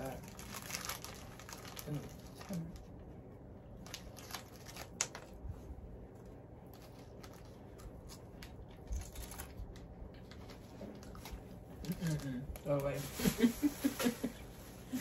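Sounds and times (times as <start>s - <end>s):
plastic wrappers crinkling: 0.0s - 3.1s, 3.7s - 5.4s, 6.6s - 15.0s
wrapper snapping: 0.1s - 2.9s, 3.8s - 5.4s, 6.7s - 9.9s.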